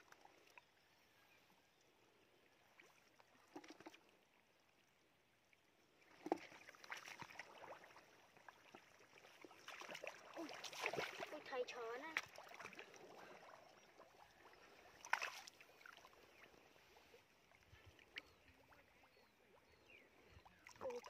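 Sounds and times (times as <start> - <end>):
hands splashing in muddy water: 9.4 - 11.4, 14.9 - 16.1.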